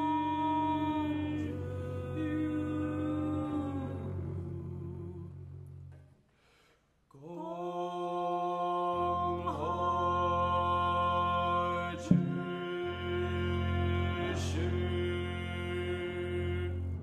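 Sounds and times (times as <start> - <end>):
voice chanting long note: 0.0 - 5.7, 7.2 - 17.0
low sustained notes: 0.0 - 6.0, 7.6 - 17.0
bowed double bass note: 9.1 - 17.0.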